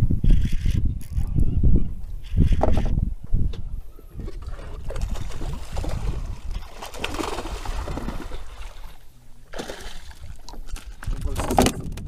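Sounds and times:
sea water splashing against boat: 0:04.3 - 0:11.7.

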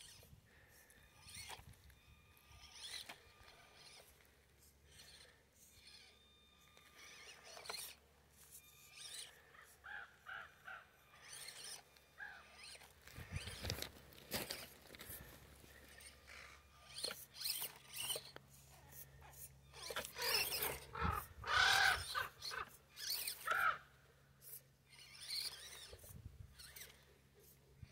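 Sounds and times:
stones crunching under tyres: 0:13.0 - 0:15.4
bird calls: 0:20.2 - 0:23.8.

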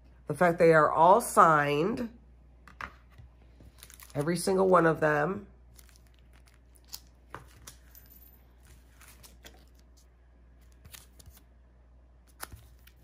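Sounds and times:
plastic sleeves rustling: 0:03.0 - 0:04.9, 0:05.7 - 0:11.5, 0:12.2 - 0:13.0.

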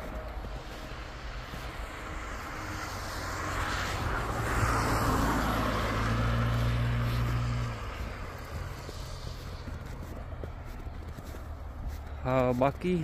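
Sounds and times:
low engine hum: 0:00.0 - 0:12.3
tyres hissing on wet road: 0:00.4 - 0:09.6.

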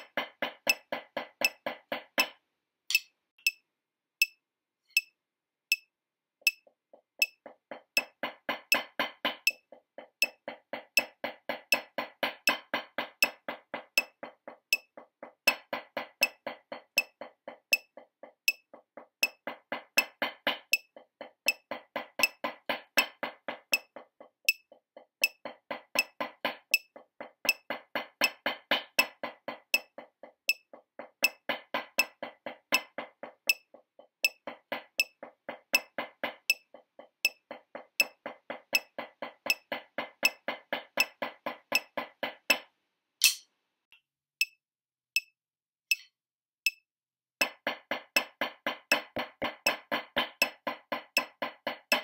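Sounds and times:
drumsticks on practice pad: 0:02.9 - 0:03.6, 0:04.2 - 0:07.4, 0:43.2 - 0:43.5, 0:45.9 - 0:46.1
metronome click: 0:45.9 - 0:46.1.

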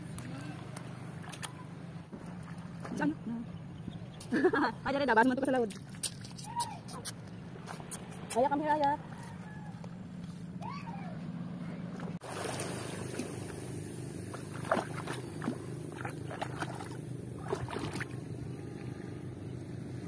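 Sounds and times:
feet wading through shallow water: 0:00.0 - 0:03.2, 0:11.9 - 0:20.0
boat engine running: 0:00.0 - 0:06.0, 0:07.2 - 0:20.0.

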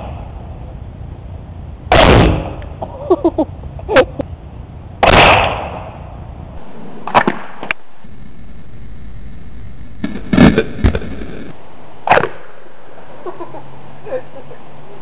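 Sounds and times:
spud gun firing bang: 0:01.9 - 0:02.6, 0:05.0 - 0:05.9.

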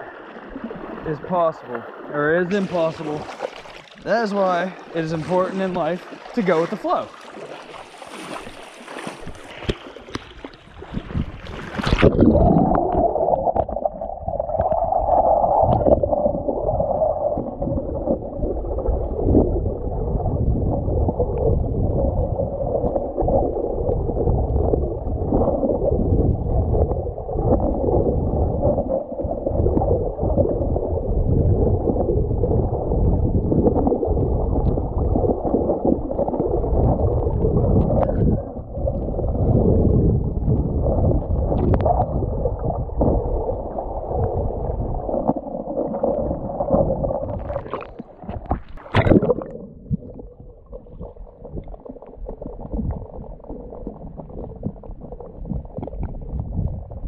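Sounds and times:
water splash: 0:00.0 - 0:19.5, 0:41.0 - 0:50.9
muffled underwater river rush: 0:00.0 - 0:57.0.

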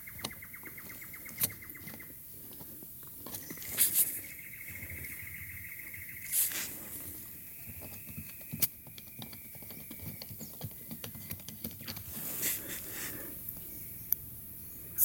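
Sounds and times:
small clicks and taps: 0:07.8 - 0:12.1.

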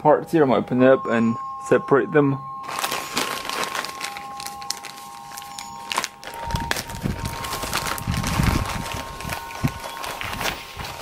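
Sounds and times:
plastic bag crinkling: 0:02.6 - 0:11.0.

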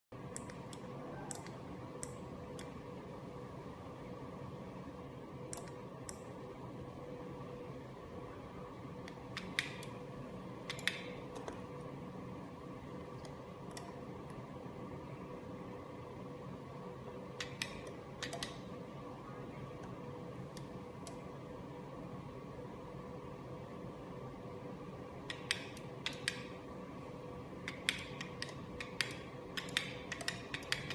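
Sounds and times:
steady low hum: 0:00.1 - 0:30.9
light switch keys clicking: 0:10.7 - 0:11.6, 0:17.4 - 0:18.6, 0:27.7 - 0:30.9.

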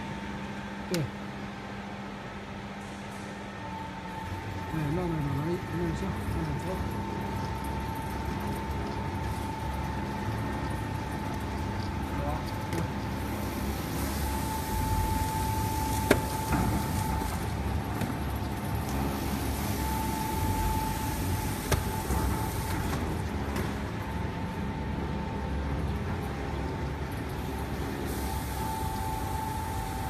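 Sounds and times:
steady high tone: 0:13.3 - 0:22.7, 0:27.4 - 0:30.0.

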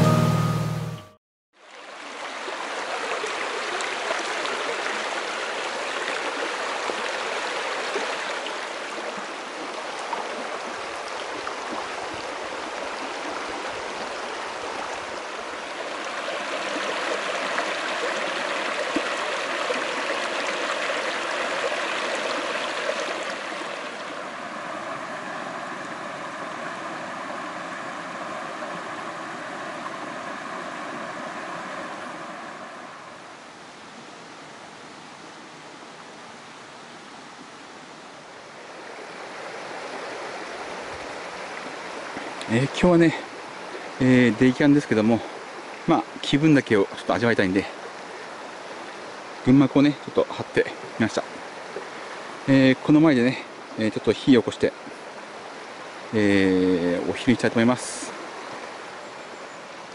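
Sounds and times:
stream rushing over rocks: 0:01.6 - 0:59.9.

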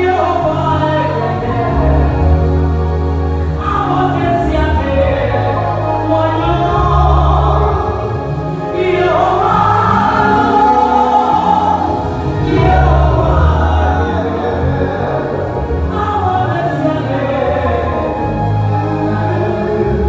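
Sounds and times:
woman singing into microphone: 0:00.0 - 0:02.2, 0:03.6 - 0:15.2, 0:15.9 - 0:20.0
backing music with deep bass: 0:00.0 - 0:20.0
choir voices: 0:00.0 - 0:20.0.

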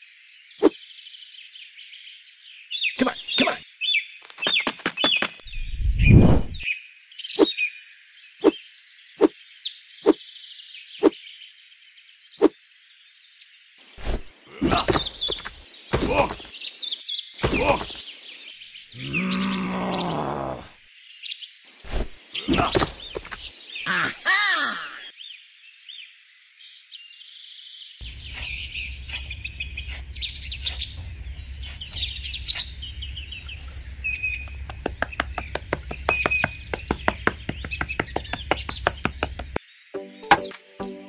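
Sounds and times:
birds chirping: 0:00.0 - 0:12.8, 0:13.4 - 0:26.0, 0:27.4 - 0:41.0
sharp knocks: 0:14.7 - 0:16.5, 0:17.4 - 0:18.0, 0:34.4 - 0:39.6
steady low hum: 0:28.0 - 0:37.8.

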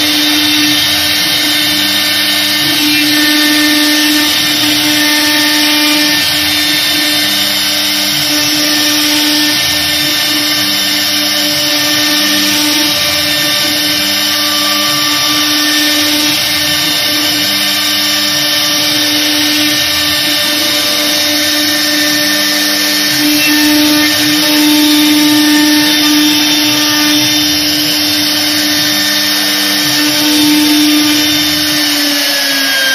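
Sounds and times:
low humming axis motors: 0:00.0 - 0:31.8
router spindle whine: 0:00.0 - 0:32.9.

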